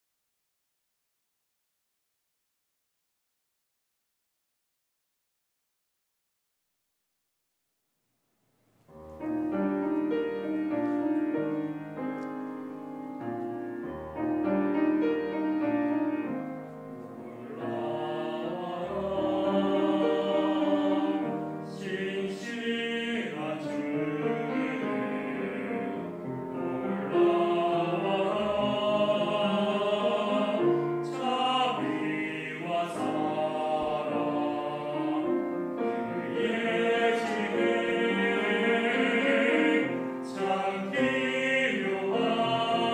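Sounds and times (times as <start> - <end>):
piano accompaniment: 8.9 - 42.9
church choir singing a hymn: 9.5 - 42.9.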